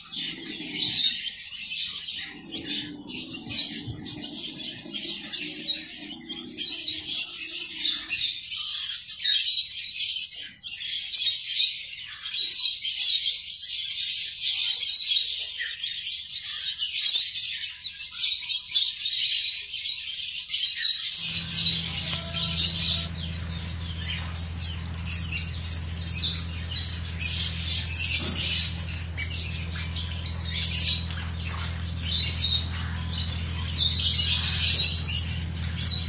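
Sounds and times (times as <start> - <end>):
ducklings and chicks peeping: 21.2 - 36.0.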